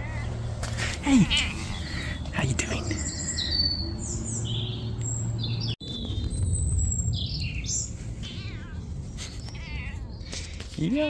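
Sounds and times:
cat meowing: 0:00.0 - 0:00.3, 0:01.2 - 0:01.8, 0:08.2 - 0:10.1
small birds chirping: 0:00.0 - 0:11.0.

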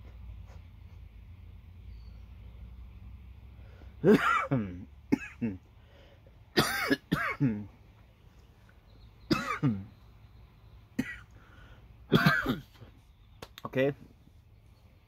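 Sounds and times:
man coughing: 0:04.0 - 0:05.7, 0:06.6 - 0:07.7, 0:09.3 - 0:09.9, 0:11.0 - 0:11.3, 0:12.1 - 0:12.8.

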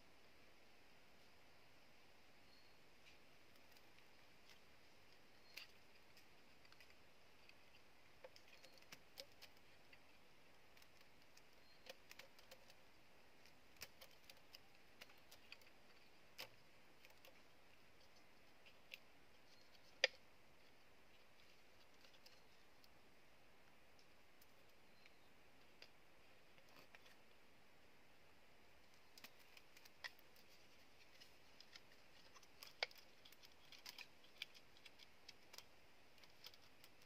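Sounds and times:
bamboo pieces clicking: 0:03.5 - 0:20.3, 0:28.9 - 0:37.0.

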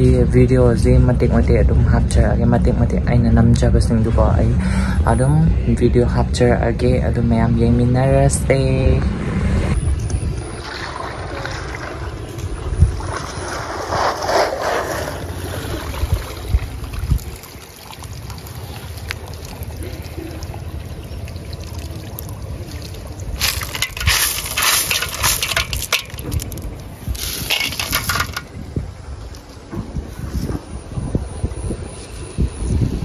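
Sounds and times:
steady low rumble: 0:00.0 - 0:33.0
water splashing and trickling: 0:10.2 - 0:29.5.

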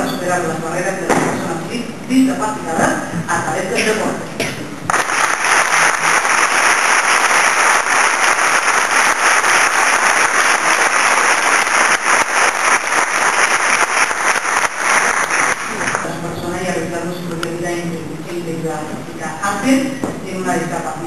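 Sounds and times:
audience applause: 0:04.9 - 0:16.0.

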